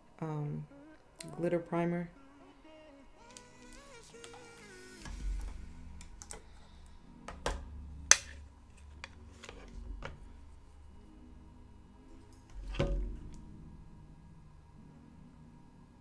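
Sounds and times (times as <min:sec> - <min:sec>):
soft background music: 0:00.0 - 0:16.0.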